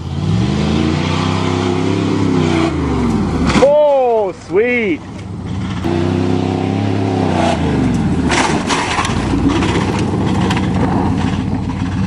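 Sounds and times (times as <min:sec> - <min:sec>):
truck engine revving: 0:00.0 - 0:12.0
truck clanking and rattling: 0:05.0 - 0:05.9, 0:07.1 - 0:12.0.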